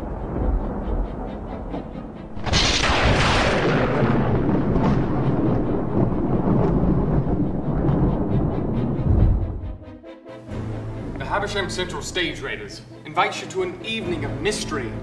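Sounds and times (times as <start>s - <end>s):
sharp thunderclap: 0.0s - 9.9s
low thunder rumble: 0.0s - 10.0s.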